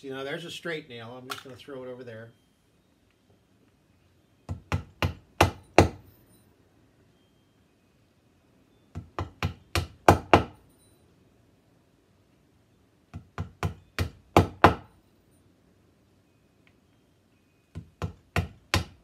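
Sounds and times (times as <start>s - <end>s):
mallet tapping nails into wood: 4.5s - 6.0s, 8.9s - 10.6s, 13.1s - 14.9s, 17.7s - 19.0s.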